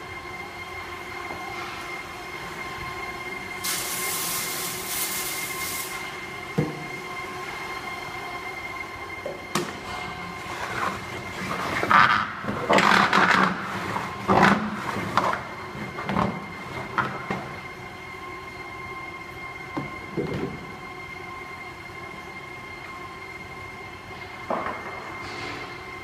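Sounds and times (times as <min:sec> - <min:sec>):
sorting machine hum: 0:00.0 - 0:26.0.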